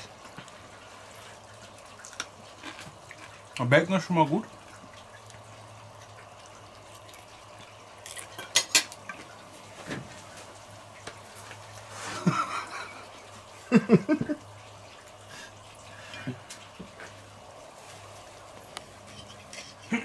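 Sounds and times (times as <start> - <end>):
cutlery clinking and scraping plate: 8.3 - 9.0, 19.1 - 19.9.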